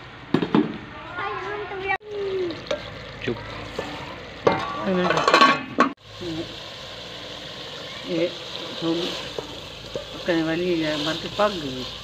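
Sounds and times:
curry sizzling in pot: 2.0 - 12.0
ladle scraping metal pot: 3.6 - 6.0.

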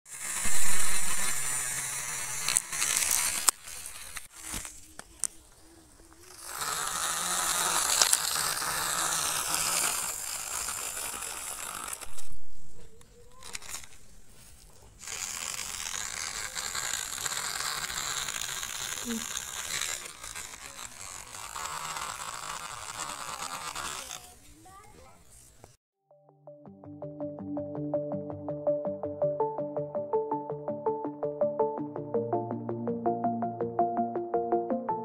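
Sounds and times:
toy car motors whining: 0.1 - 25.5.

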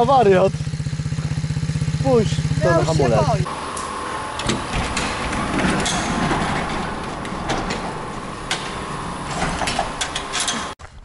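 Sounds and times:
garage door rolling rumble: 0.0 - 10.8
door rollers clicking: 3.6 - 10.8.

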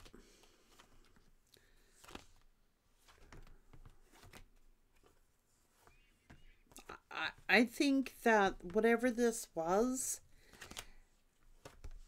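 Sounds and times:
cards rustling and tapping: 0.0 - 7.6, 10.2 - 12.0.

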